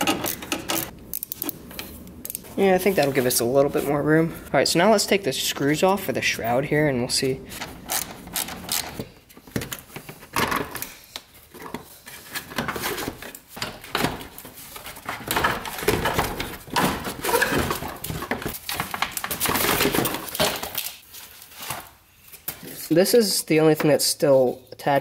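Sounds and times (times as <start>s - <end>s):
hand tools clicking and scraping: 0.0s - 4.0s, 7.2s - 21.0s.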